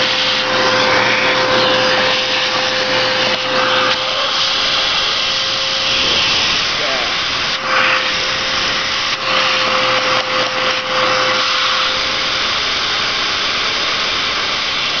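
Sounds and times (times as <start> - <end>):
vacuum running with faint whine: 0.0 - 15.0.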